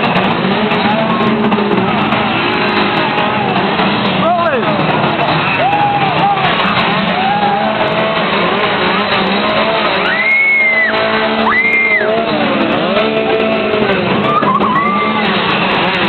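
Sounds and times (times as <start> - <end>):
crowd yelling: 0.0 - 16.0
loud droning music: 0.0 - 16.0
high-pitched screams: 10.0 - 12.3, 14.2 - 15.5.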